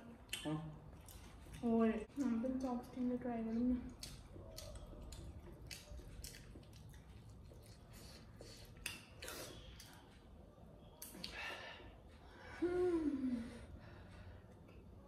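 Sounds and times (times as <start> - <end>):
mouth sounds of eating: 0.0 - 10.1.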